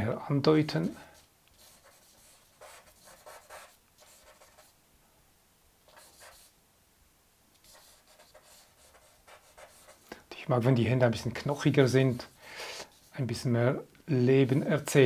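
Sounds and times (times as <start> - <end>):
charcoal scratching on paper: 1.6 - 4.7, 5.9 - 6.5, 7.6 - 10.0.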